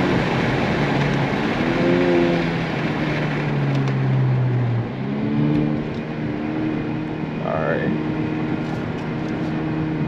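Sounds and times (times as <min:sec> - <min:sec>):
car engine accelerating: 0:00.0 - 0:10.0.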